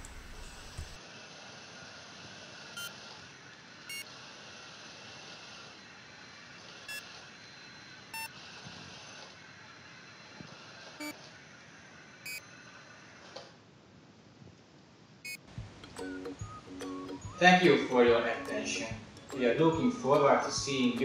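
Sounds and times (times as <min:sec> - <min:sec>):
robot drive motors humming: 0:00.0 - 0:01.0
short electronic beeps: 0:12.2 - 0:12.4, 0:15.3 - 0:21.0.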